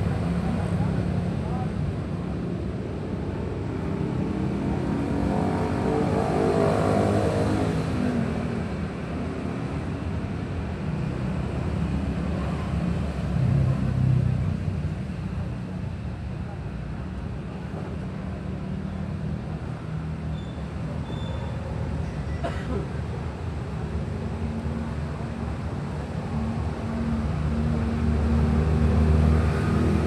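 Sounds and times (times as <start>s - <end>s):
traffic rumble: 0.0s - 30.0s
engine passing close: 23.9s - 30.0s.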